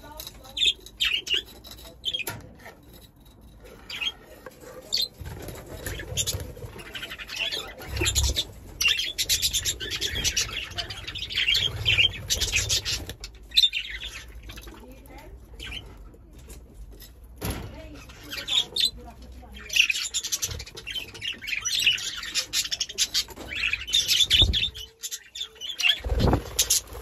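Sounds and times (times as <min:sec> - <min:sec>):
budgerigars chirping and chattering: 0:00.0 - 0:27.0
wings fluttering: 0:25.9 - 0:27.0.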